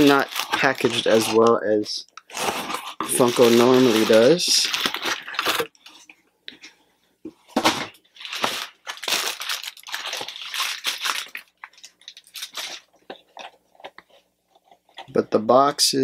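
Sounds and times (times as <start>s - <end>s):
packaging crinkling and tearing: 0.0s - 6.0s, 7.6s - 14.0s.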